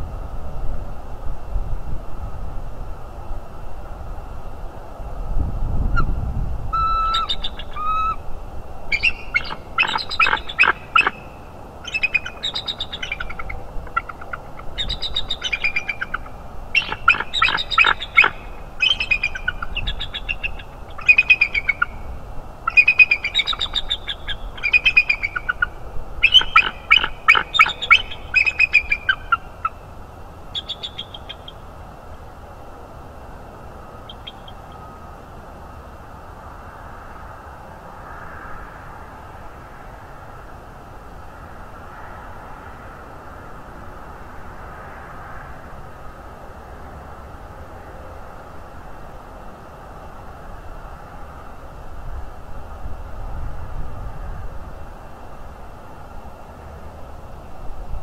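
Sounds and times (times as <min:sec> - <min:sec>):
eagles chittering and piping: 0:06.7 - 0:08.2, 0:08.9 - 0:29.8, 0:30.5 - 0:31.6, 0:34.1 - 0:34.8.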